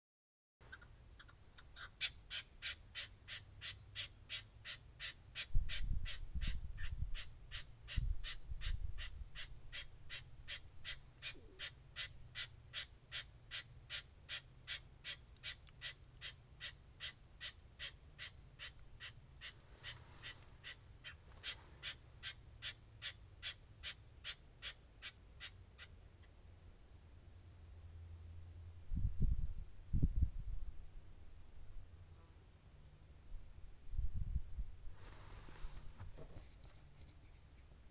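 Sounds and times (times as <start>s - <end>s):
partridge calling: 0.6s - 26.3s.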